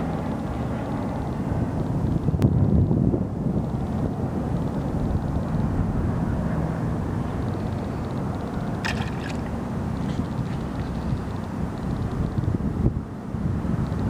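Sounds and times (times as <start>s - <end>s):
wind rumble on microphone: 0.0s - 14.0s
lure splashing in water: 8.7s - 11.0s.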